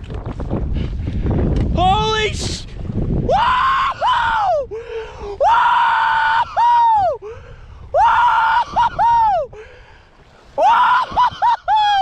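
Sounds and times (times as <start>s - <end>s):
man whooping: 3.3s - 4.7s, 5.4s - 7.2s, 8.0s - 9.5s, 10.6s - 12.0s.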